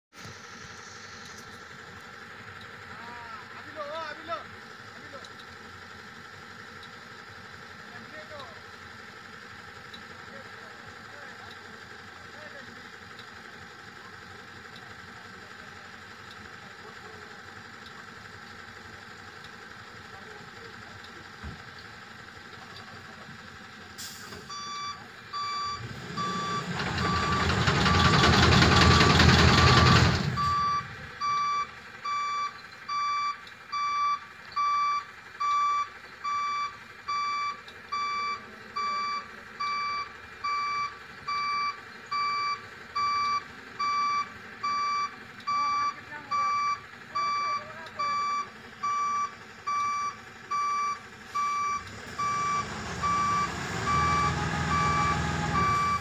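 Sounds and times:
lorry diesel engine: 0.1s - 56.0s
reversing alarm beeping: 24.0s - 56.0s.

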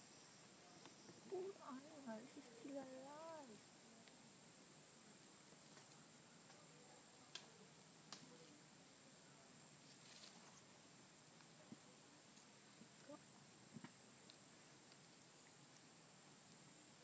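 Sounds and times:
high insect buzz: 0.0s - 6.1s.

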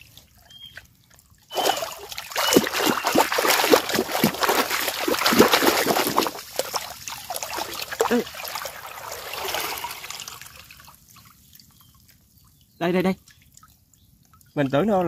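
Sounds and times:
shallow water splashing: 0.0s - 14.7s
water pouring through basket: 1.2s - 12.1s.

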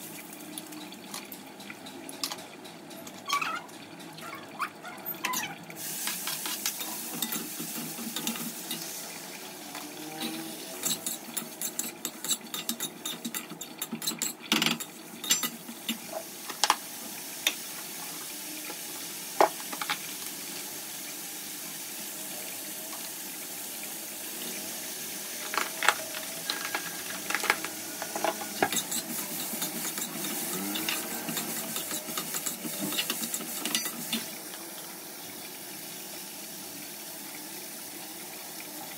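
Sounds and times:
hot oil sizzling: 0.0s - 38.9s
spoon stirring in pan: 5.2s - 9.0s, 10.1s - 16.8s, 25.4s - 34.3s.

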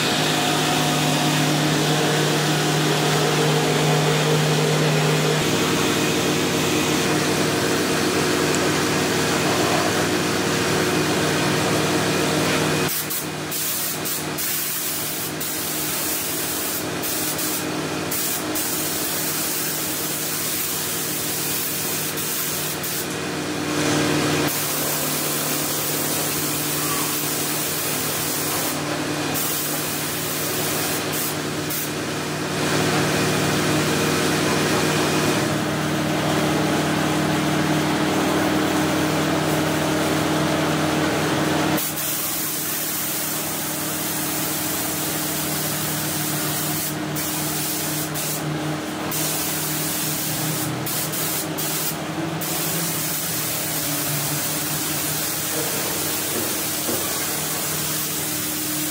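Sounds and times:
steady hum: 0.0s - 13.5s
spray gun hissing: 12.9s - 23.1s, 24.5s - 31.9s, 41.8s - 48.4s, 49.1s - 58.9s.

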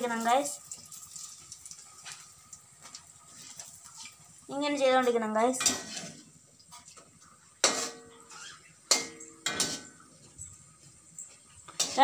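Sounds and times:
steel utensils clanking: 7.6s - 10.0s.

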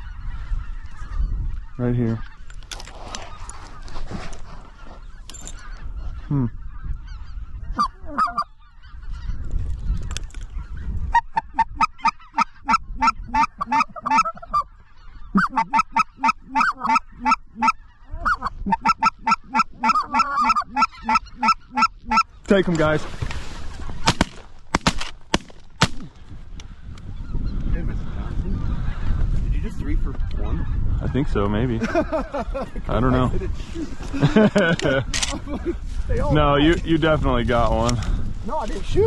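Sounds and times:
geese calling: 0.0s - 39.0s
wind rumbling on microphone: 0.0s - 39.0s.

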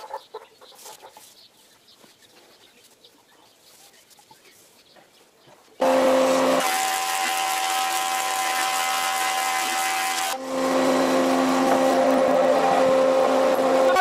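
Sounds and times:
planer knives cutting board: 5.8s - 13.7s
planer machine hum: 5.8s - 14.0s.

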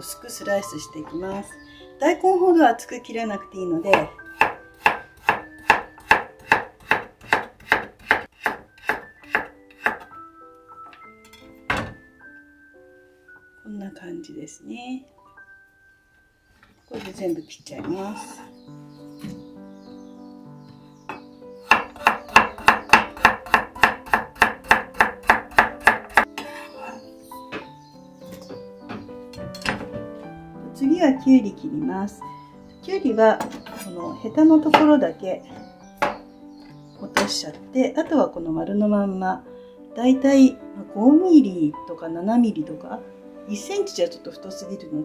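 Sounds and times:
knife strikes on wooden board: 3.9s - 10.1s, 21.1s - 26.5s, 36.0s - 36.2s.

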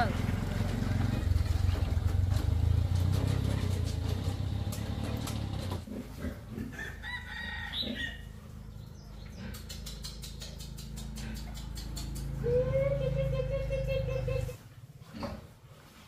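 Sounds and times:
motor tricycle engine rumble: 0.0s - 5.9s, 11.7s - 14.6s
rooster crowing: 6.7s - 8.3s.

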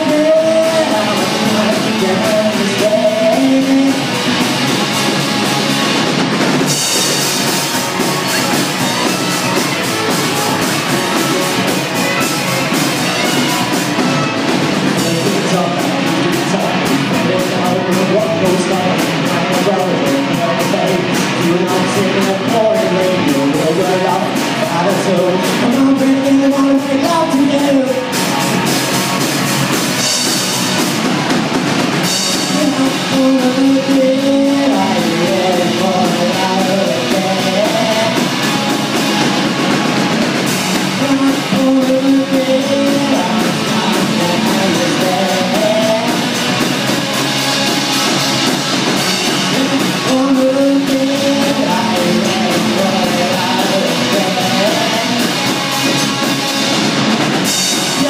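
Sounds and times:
live rock band: 0.0s - 58.0s.

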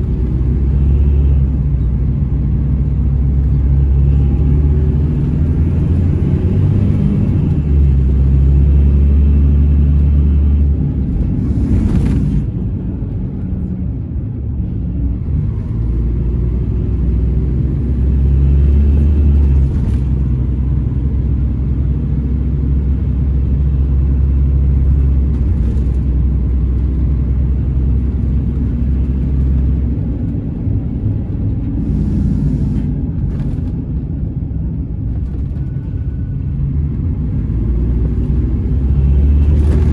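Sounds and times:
bus engine drone: 0.0s - 39.9s
brief air hisses: 31.8s - 32.9s.

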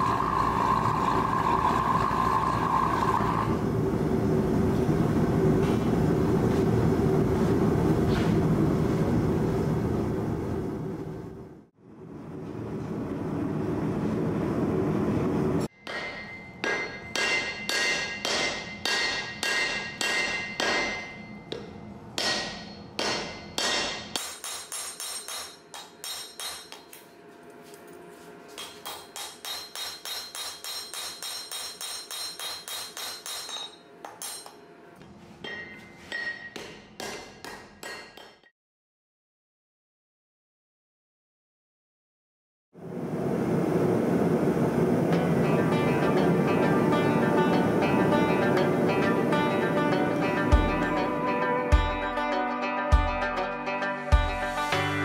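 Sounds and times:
gas forge burner roaring: 0.0s - 15.7s, 42.8s - 51.4s
hammer striking metal on anvil: 15.7s - 27.0s, 28.6s - 34.6s, 35.4s - 38.5s.

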